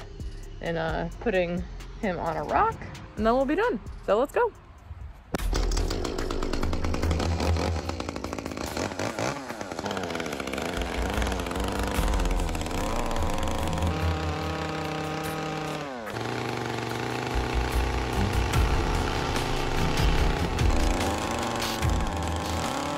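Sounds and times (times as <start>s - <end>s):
small chainsaw cutting wood: 5.5s - 22.9s.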